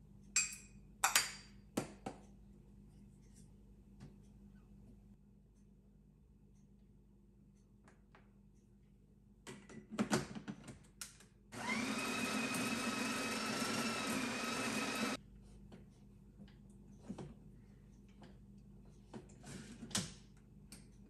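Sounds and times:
small electric motor whirring: 0:11.6 - 0:15.2.

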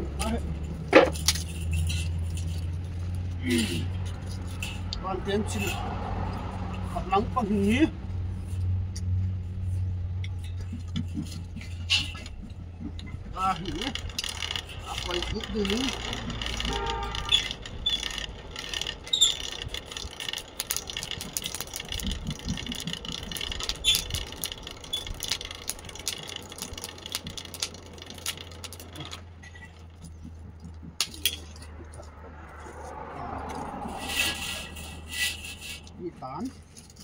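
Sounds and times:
metal parts clinking and rattling: 0:00.0 - 0:05.9, 0:09.4 - 0:32.2, 0:33.5 - 0:35.9, 0:36.5 - 0:37.0.

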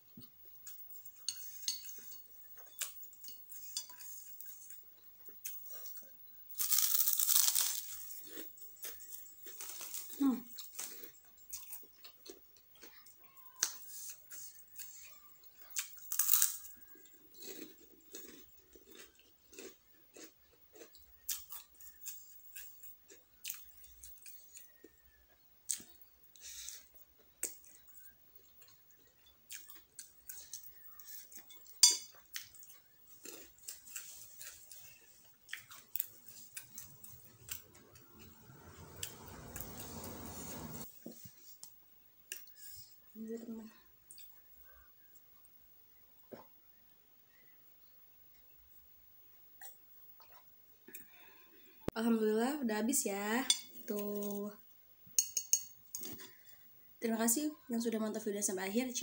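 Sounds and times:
close-up chewing: 0:00.2 - 0:39.7.

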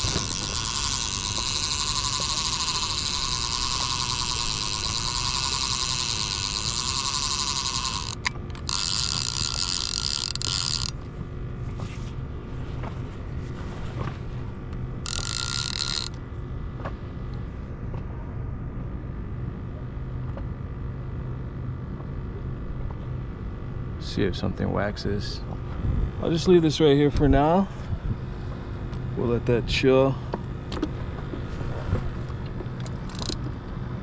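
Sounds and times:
low rumble of wind: 0:00.0 - 0:07.1, 0:07.8 - 0:15.1, 0:15.9 - 0:34.0
reel click: 0:00.0 - 0:11.0, 0:15.0 - 0:16.2, 0:32.8 - 0:33.5
fishing reel whirring: 0:00.0 - 0:11.2, 0:14.9 - 0:16.2, 0:32.8 - 0:33.5
boat noise: 0:00.0 - 0:20.4.

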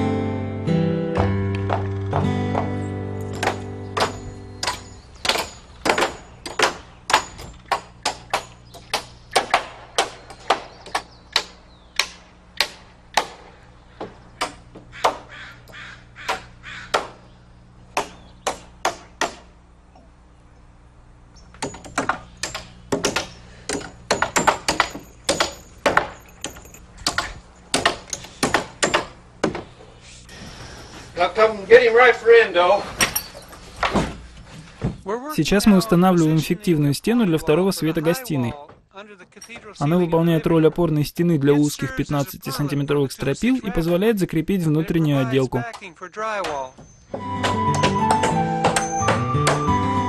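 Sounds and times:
hammers driving nails into wood: 0:03.3 - 0:15.3, 0:16.2 - 0:17.2, 0:17.9 - 0:19.5, 0:21.6 - 0:29.7, 0:45.7 - 0:49.7.

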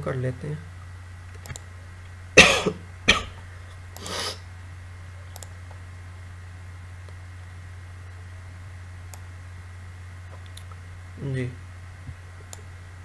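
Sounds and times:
steady low hum: 0:00.0 - 0:13.0
man coughing: 0:02.4 - 0:03.4
throat clearing: 0:02.4 - 0:03.4.

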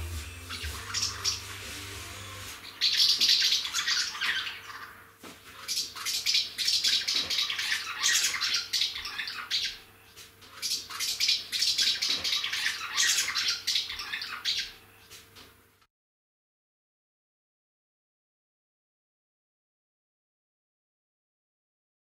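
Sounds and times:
swallows twittering: 0:00.5 - 0:01.6, 0:02.6 - 0:04.9.

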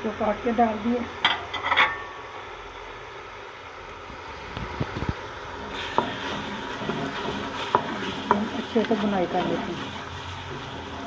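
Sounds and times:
food sizzling in a pot: 0:04.2 - 0:11.0
wooden spoon knocking pot: 0:06.8 - 0:09.6.

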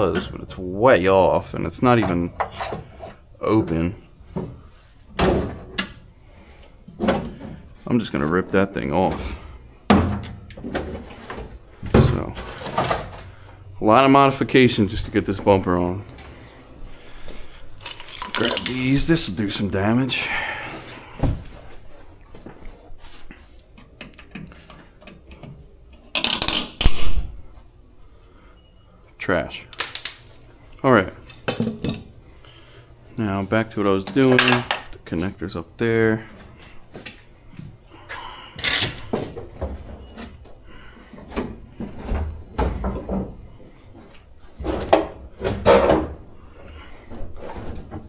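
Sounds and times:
car parts knocking and clunking: 0:04.3 - 0:06.1, 0:06.8 - 0:07.7, 0:09.9 - 0:13.2, 0:39.0 - 0:46.4.

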